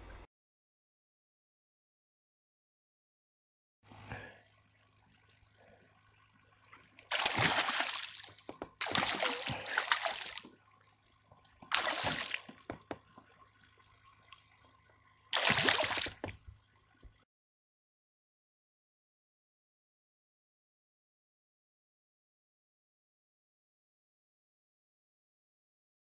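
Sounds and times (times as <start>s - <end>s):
fish splashing at surface: 7.1s - 10.5s, 11.7s - 12.8s, 15.3s - 16.5s.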